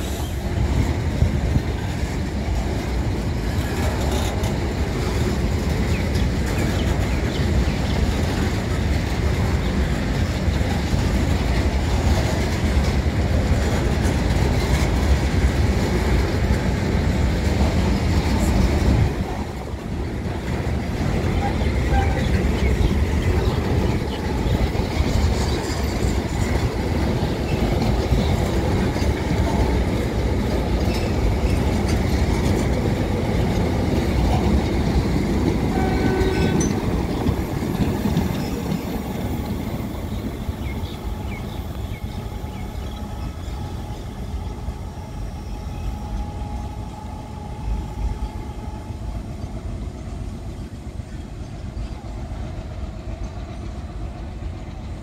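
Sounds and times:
train rumbling and clattering: 0.0 - 55.0
train horn: 21.0 - 22.7, 35.6 - 37.4, 41.3 - 49.7.

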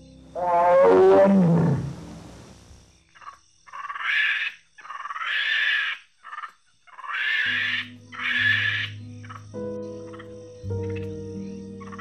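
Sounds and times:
animal call falling in pitch: 0.4 - 2.2
harsh rasping animal calls: 0.4 - 2.4, 3.7 - 9.4.

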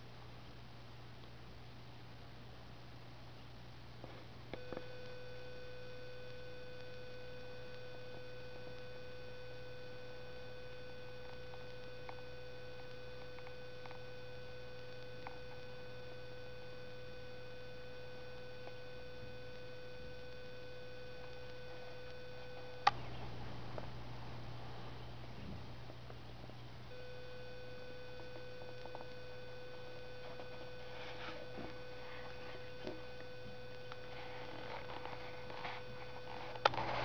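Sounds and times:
low steady hum: 0.0 - 37.0
steady electronic tone: 26.9 - 37.0.

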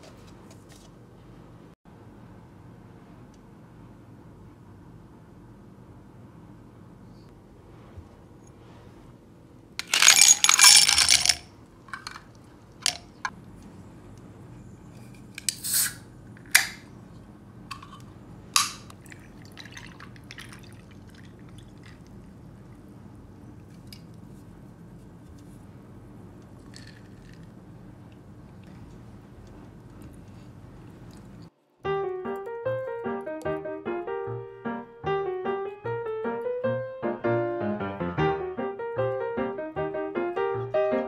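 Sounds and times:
ice clinking against glass: 9.8 - 11.4
ice cubes clattering into glass: 9.8 - 12.2.

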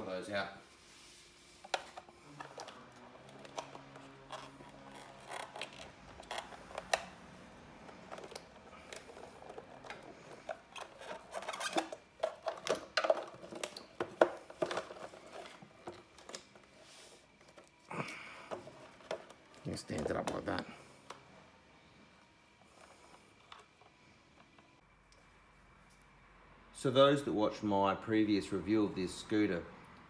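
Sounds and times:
plastic casing scraping: 1.6 - 16.6.

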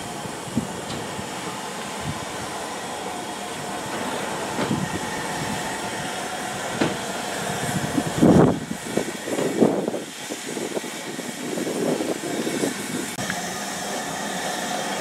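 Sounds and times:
steam locomotive hiss: 0.0 - 15.0
wheels clicking over rail joints: 0.6 - 10.0.

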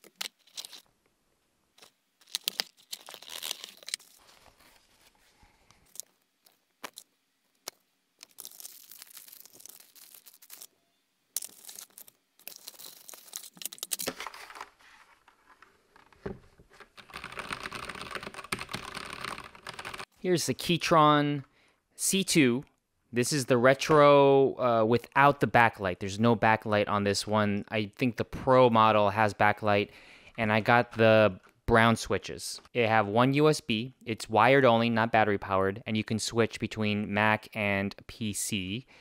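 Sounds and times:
plastic bags rustling and tearing: 1.8 - 5.2, 8.2 - 10.7, 11.4 - 15.3
typing on mechanical keyboard: 17.0 - 20.1.

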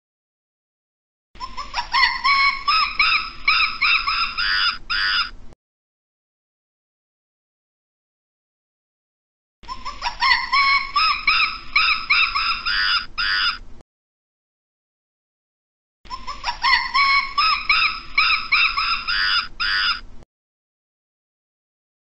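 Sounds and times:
primate calls: 1.4 - 5.4, 9.6 - 13.7, 16.1 - 20.1.

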